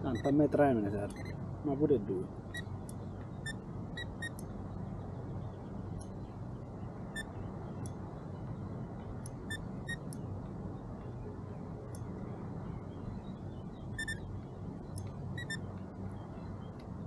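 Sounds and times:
low background hum: 0.0 - 17.0
short high electronic beeps: 14.0 - 14.2.

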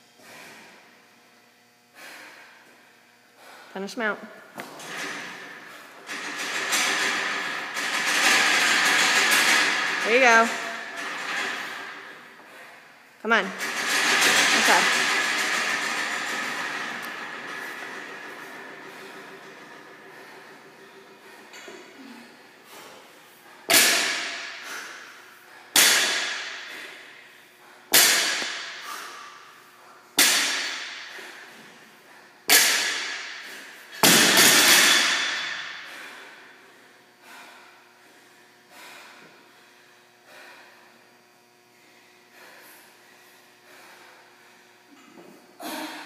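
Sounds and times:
barbell thudding on rubber floor: 25.8 - 26.6, 27.9 - 28.7, 30.2 - 31.0.

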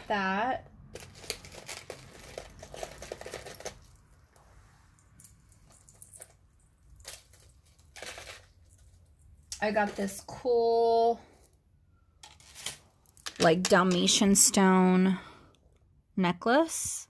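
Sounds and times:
jewelry chains and beads rattling: 0.9 - 4.1, 5.2 - 10.2.

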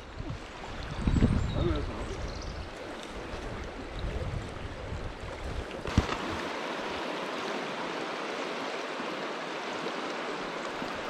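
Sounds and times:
low rumbling on microphone: 0.0 - 2.7
river water rushing over stones: 2.6 - 11.0.

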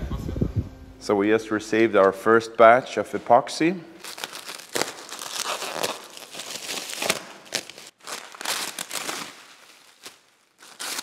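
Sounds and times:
plastic wrap tearing and crinkling: 4.0 - 11.0.

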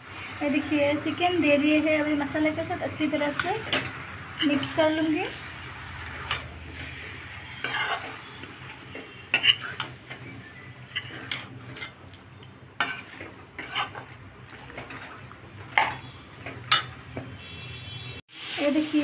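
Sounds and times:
chicken sizzling in oil: 0.0 - 17.5, 18.3 - 19.0
metal spoon scraping a pan: 3.1 - 12.2, 12.8 - 17.4.

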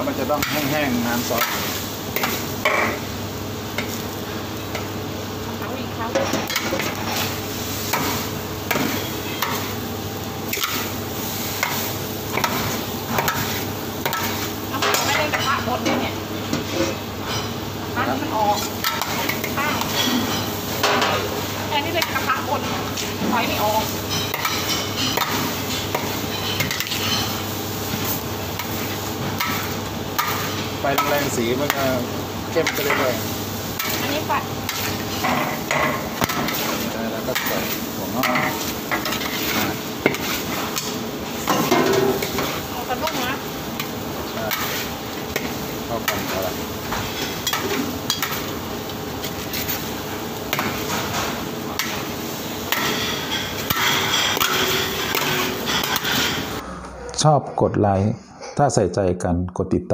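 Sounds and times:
frying hiss: 0.0 - 56.6
spatula clanking on a wok: 7.9 - 9.8, 11.6 - 17.6, 18.4 - 48.6, 50.4 - 56.6
metal spatula scraping a wok: 32.6 - 43.9, 52.7 - 56.6.

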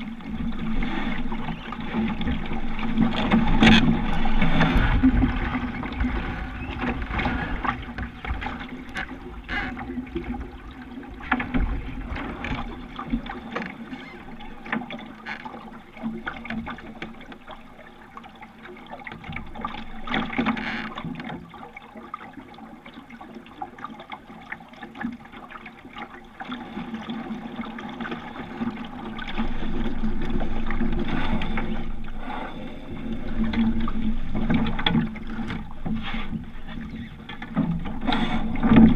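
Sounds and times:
water rushing along boat bow: 0.0 - 38.9.

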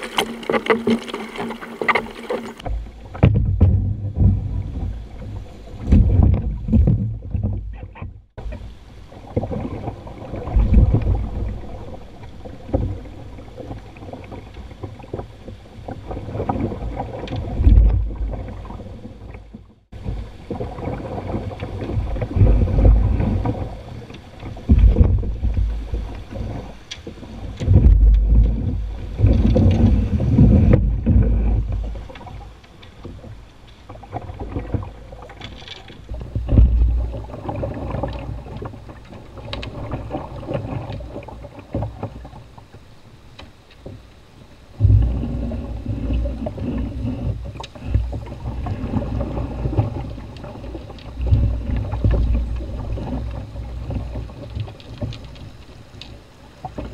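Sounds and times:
water rushing over rocks: 0.0 - 7.4
wind buffeting microphone: 27.6 - 32.0.

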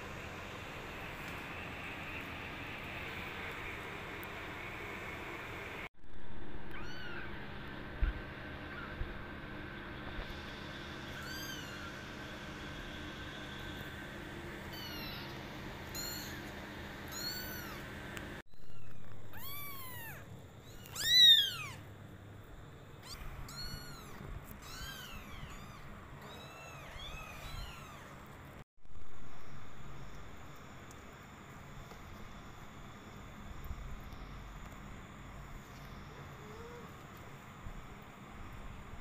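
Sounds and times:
kittens meowing: 6.7 - 7.4, 8.7 - 9.0, 11.1 - 12.0, 14.7 - 16.5, 17.1 - 17.8, 18.5 - 21.8, 23.0 - 28.2.

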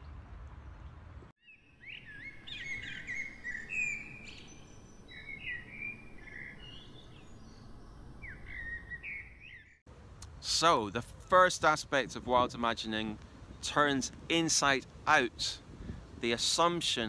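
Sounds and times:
bird song: 0.0 - 9.8.

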